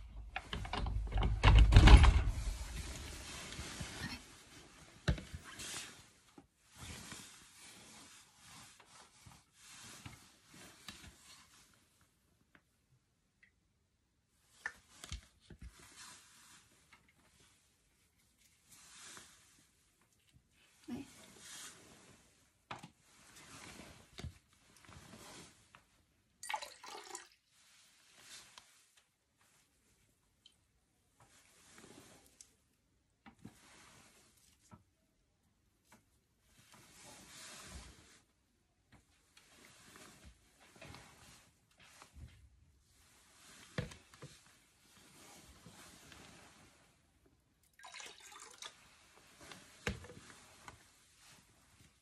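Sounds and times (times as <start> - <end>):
rustling: 1.6 - 12.0
water pouring into glass jar: 26.4 - 27.4, 47.6 - 48.8.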